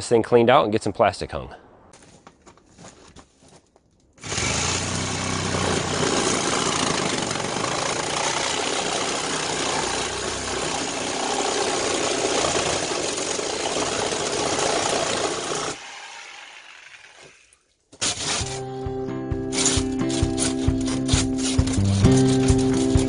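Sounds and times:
electric saw cutting pipe: 0:04.2 - 0:18.6, 0:19.5 - 0:23.0.

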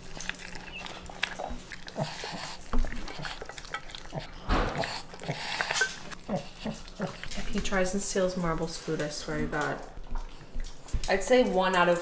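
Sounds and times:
dog chewing and licking: 0:00.0 - 0:12.0
dog snuffling breaths: 0:00.8 - 0:09.2.

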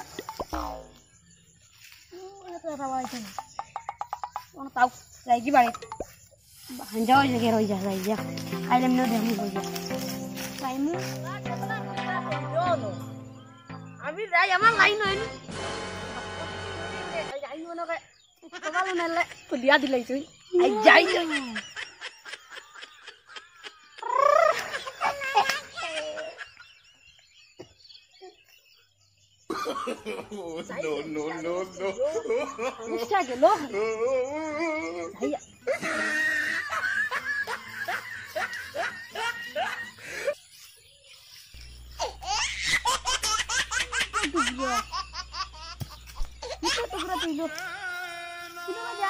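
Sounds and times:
boy laughing: 0:20.7 - 0:26.6, 0:29.6 - 0:40.3, 0:42.0 - 0:48.0.

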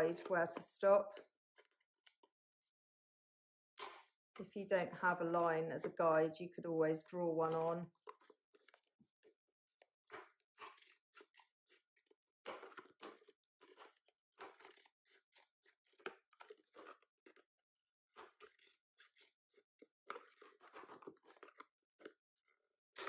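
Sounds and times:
scissors cutting plastic: 0:07.5 - 0:17.5, 0:18.1 - 0:22.2.

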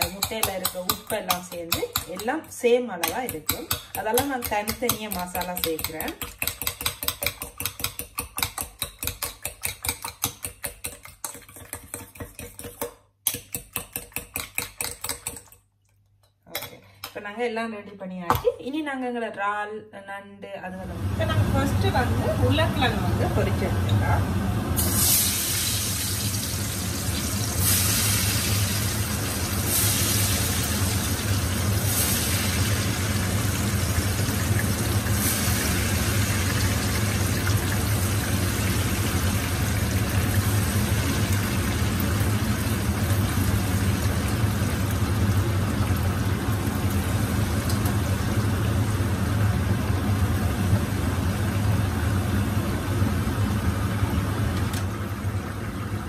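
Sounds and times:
potatoes sizzling in hot oil: 0:00.0 - 0:02.3, 0:24.8 - 0:52.6.

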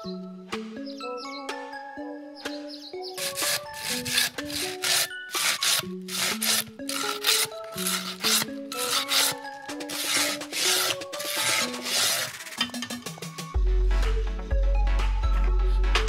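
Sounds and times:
pruning saw cutting branch: 0:03.2 - 0:12.6.

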